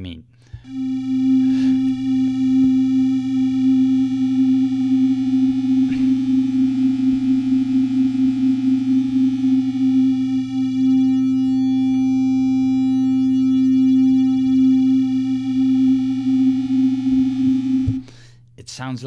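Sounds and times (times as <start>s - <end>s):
wavering detuned synthesizer note: 0.6s - 18.1s.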